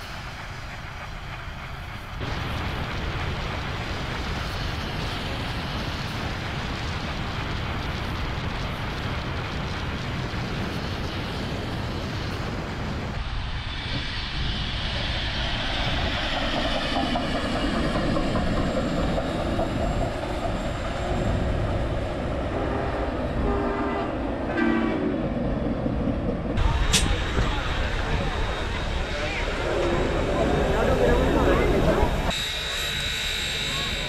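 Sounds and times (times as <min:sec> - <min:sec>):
steam train rumbling by: 0:00.0 - 0:34.0
train whistle blasts: 0:22.5 - 0:25.1, 0:32.3 - 0:34.0.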